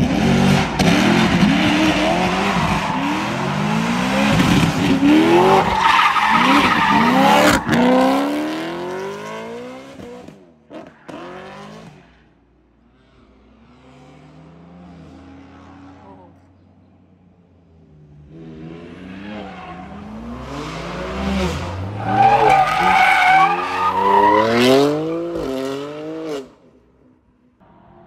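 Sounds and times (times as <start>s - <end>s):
car engine revving hard: 0.0s - 5.7s.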